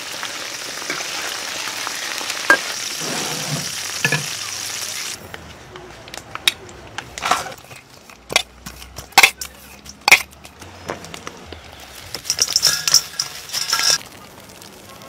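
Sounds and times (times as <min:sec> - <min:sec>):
fried food rattling into bowl: 0:11.8 - 0:14.1
sharp clinks: 0:12.1 - 0:14.0.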